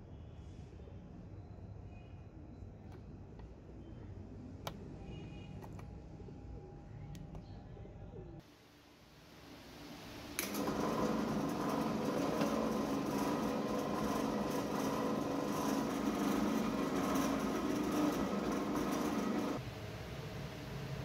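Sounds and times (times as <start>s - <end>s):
drill press boring through plastic: 10.4s - 19.6s.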